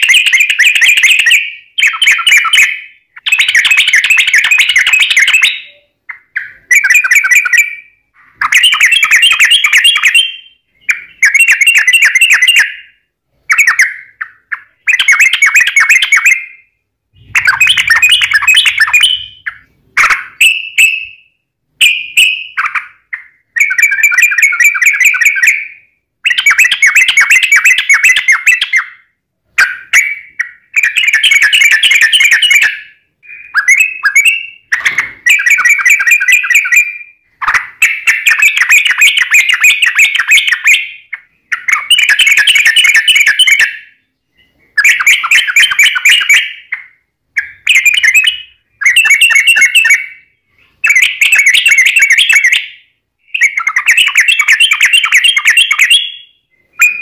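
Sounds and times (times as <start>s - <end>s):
bird singing chattering phrases: 0.0s - 21.2s, 53.2s - 57.0s.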